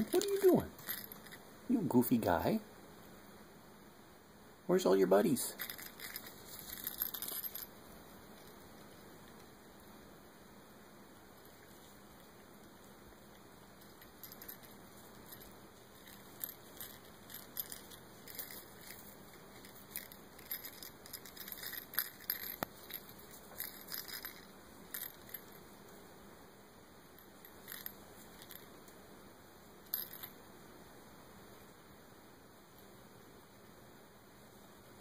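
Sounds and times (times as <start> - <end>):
faint steady hiss: 0.0 - 35.0.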